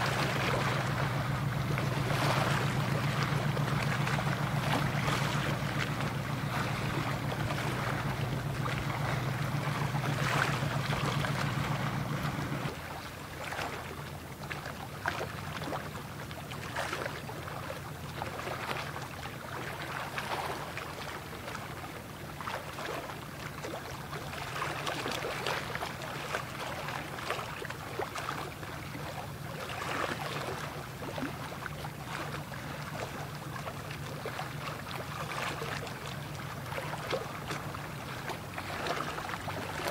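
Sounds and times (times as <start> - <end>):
ship engine drone: 0.0 - 14.5, 24.0 - 39.9
water noise: 0.0 - 39.9
wind: 0.0 - 39.9.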